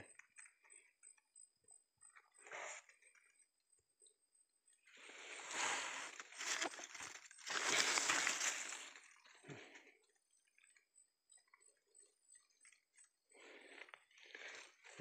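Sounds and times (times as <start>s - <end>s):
dry leaves rustling and crackling: 5.6s - 9.0s.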